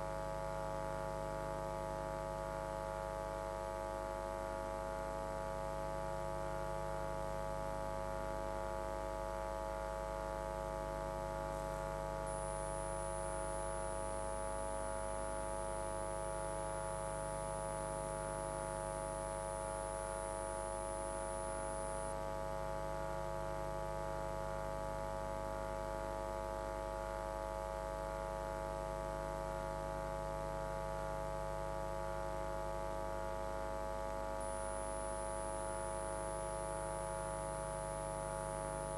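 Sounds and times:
faint high-pitched whine: 9.7s - 23.7s, 32.0s - 38.9s
electrical mains hum: 9.7s - 24.2s, 31.8s - 38.9s.

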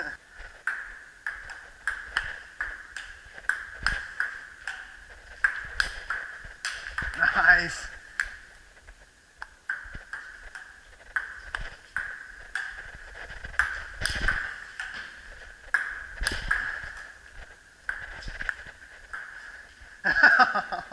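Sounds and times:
ping pong ball pinging: 0.6s - 8.4s, 9.4s - 17.2s, 17.8s - 19.5s.

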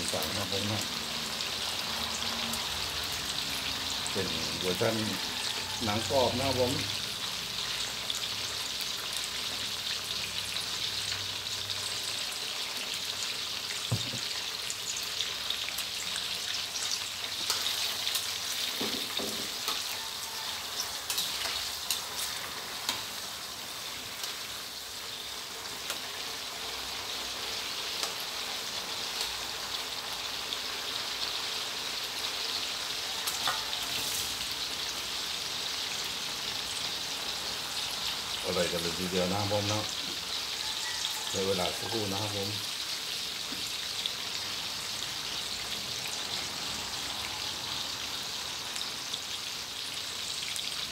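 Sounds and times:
sausages sizzling in hot oil: 0.0s - 50.9s
spatula scraping a wok: 16.8s - 24.1s, 33.4s - 34.4s.

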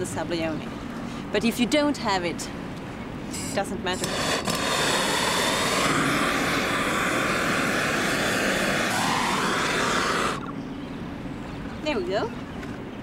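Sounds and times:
blowtorch hissing: 4.0s - 10.4s.

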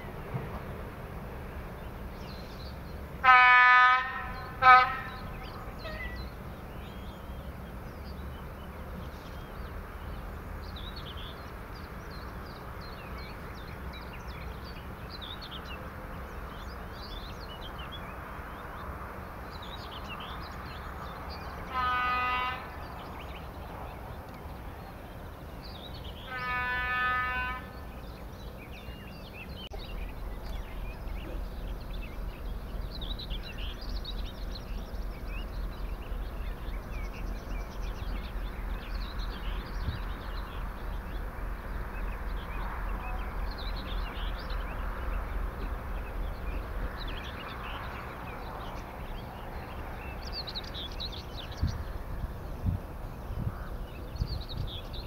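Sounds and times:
birdsong twittering: 0.0s - 55.0s
distant train horn blasts: 3.2s - 6.4s, 21.6s - 23.0s, 26.2s - 27.9s, 41.9s - 45.2s.

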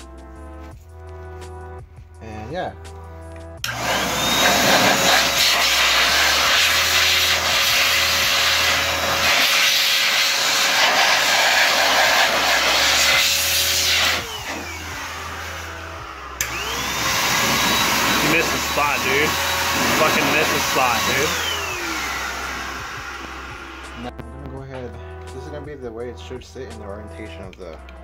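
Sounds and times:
electric air blower whining: 3.6s - 24.2s.

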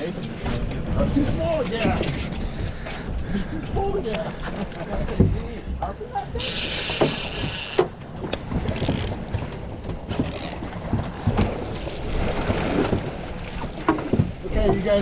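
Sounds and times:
water moving around a boat: 0.0s - 15.0s.

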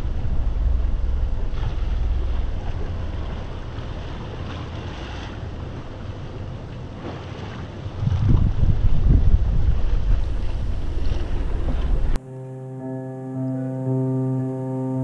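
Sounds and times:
wind rumbling on microphone: 0.0s - 12.2s
water hissing along hull: 10.1s - 12.2s.

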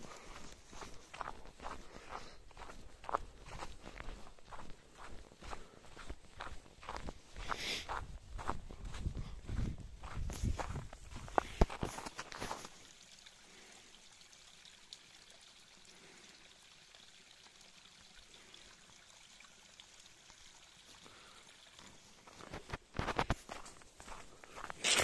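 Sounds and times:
small stream trickling: 0.0s - 9.0s, 10.0s - 25.0s
footsteps on snow: 0.0s - 12.8s, 22.3s - 25.0s.

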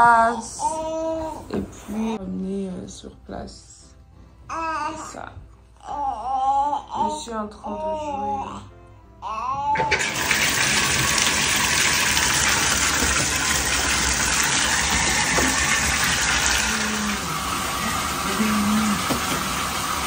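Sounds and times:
child's voice: 4.5s - 8.7s
tap water rushing into bathtub: 9.8s - 20.0s.

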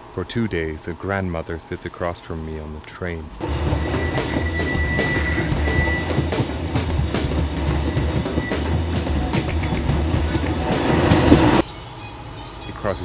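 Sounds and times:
train rumbling: 3.4s - 11.6s
wheels clacking over rail joints: 3.4s - 11.6s.

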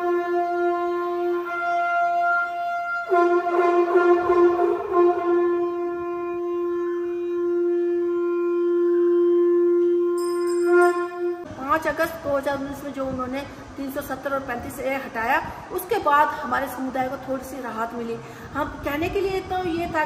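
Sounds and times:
conch shell blasts: 0.0s - 11.5s.

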